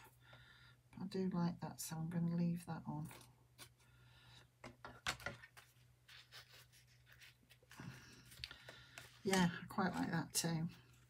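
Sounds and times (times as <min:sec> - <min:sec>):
ribbon rustling: 0:05.2 - 0:11.0.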